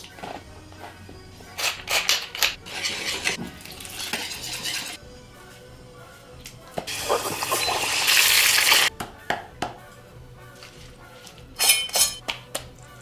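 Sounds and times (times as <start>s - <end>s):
utensil scraping a bowl: 1.6s - 5.0s.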